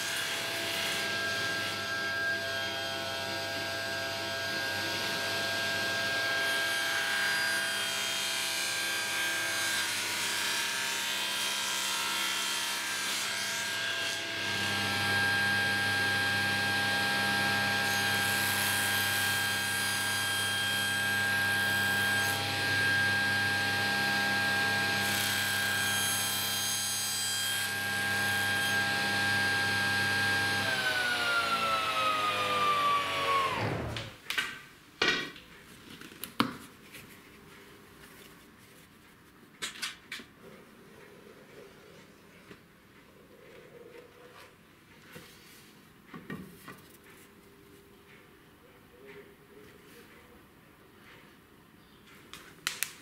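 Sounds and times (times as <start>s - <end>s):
table saw cutting wood: 0.0s - 34.2s.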